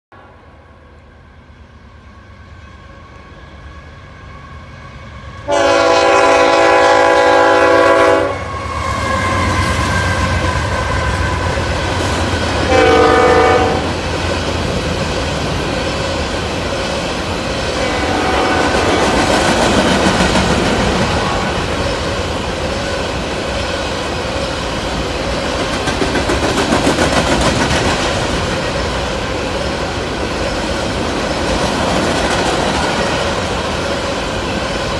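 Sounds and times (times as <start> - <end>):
freight train rumble: 0.1 - 34.9
locomotive air horn: 5.4 - 11.6, 12.6 - 14.0, 17.8 - 19.2
train wheels clicking over rail joints: 18.6 - 34.9.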